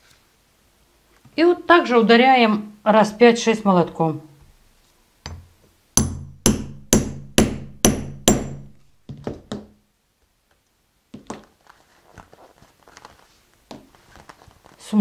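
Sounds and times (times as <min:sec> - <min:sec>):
hammer striking metal punch: 0:05.3 - 0:08.9.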